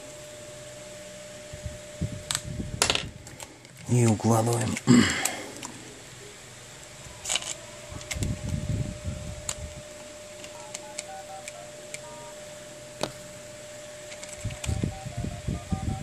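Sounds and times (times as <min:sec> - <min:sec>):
phone keypad beeps: 0:10.5 - 0:12.5, 0:14.5 - 0:16.0.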